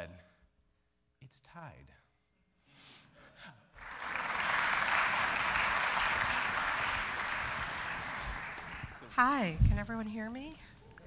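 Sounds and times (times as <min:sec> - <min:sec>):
audience applauding: 0:03.8 - 0:09.4.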